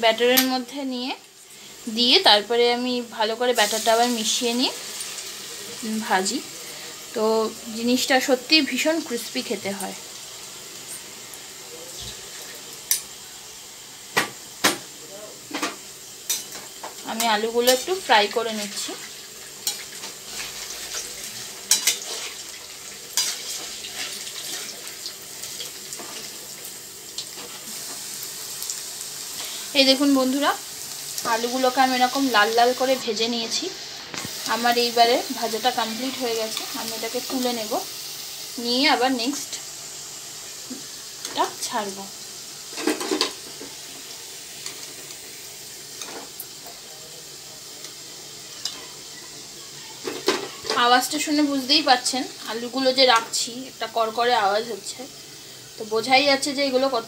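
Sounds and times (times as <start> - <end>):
potatoes deep-frying in hot oil: 0.0 - 57.0.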